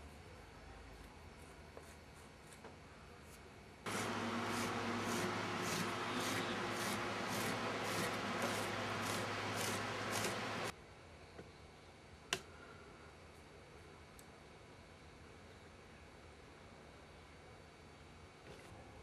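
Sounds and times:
machine humming: 3.9s - 10.7s.

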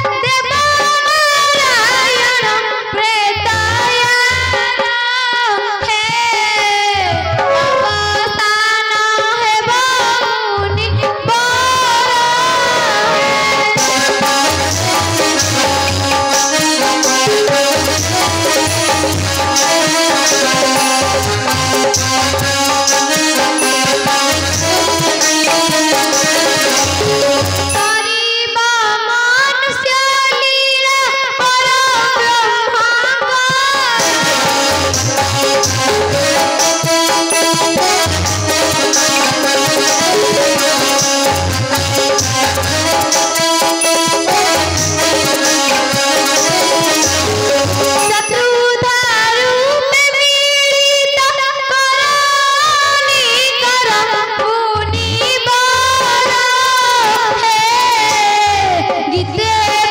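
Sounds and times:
child singing: 0.0s - 7.1s, 7.9s - 14.2s, 48.1s - 59.9s
drum strokes: 13.3s - 28.2s, 34.0s - 48.5s.

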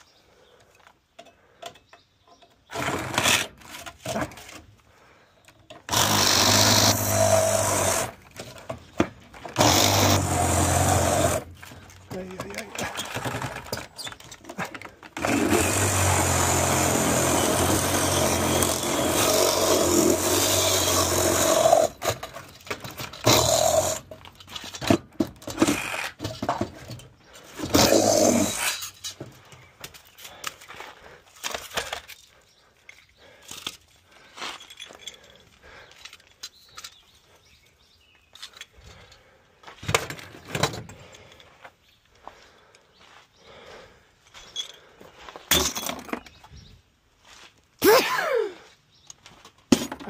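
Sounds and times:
angle grinder cutting metal: 5.9s - 8.2s, 9.6s - 11.5s, 15.2s - 22.2s, 23.2s - 24.1s, 27.6s - 29.0s.

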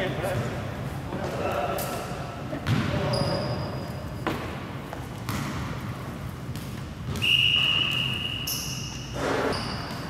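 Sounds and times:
referee whistle blast: 7.2s - 8.9s.

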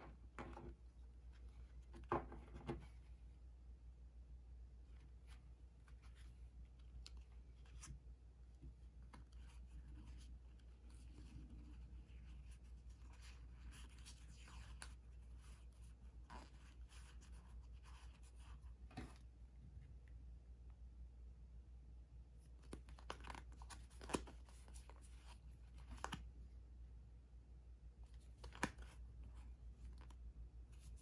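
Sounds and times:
playing cards rustling and sliding: 4.9s - 8.0s, 22.4s - 26.3s, 28.0s - 31.0s.

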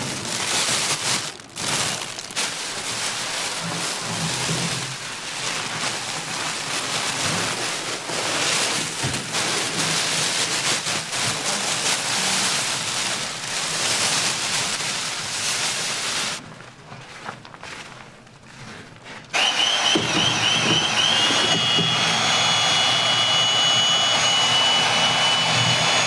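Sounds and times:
powder pouring from bag: 0.0s - 19.0s
plastic bag rustling: 0.0s - 19.4s.

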